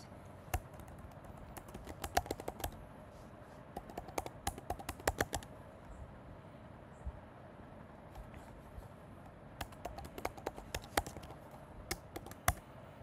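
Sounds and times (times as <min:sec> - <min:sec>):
keyboard typing: 0:00.5 - 0:02.8, 0:03.8 - 0:05.5, 0:09.6 - 0:12.6.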